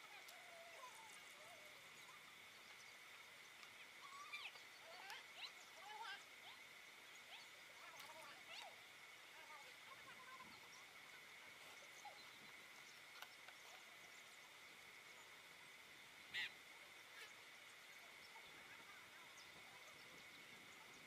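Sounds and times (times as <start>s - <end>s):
bird call: 16.3s - 17.4s.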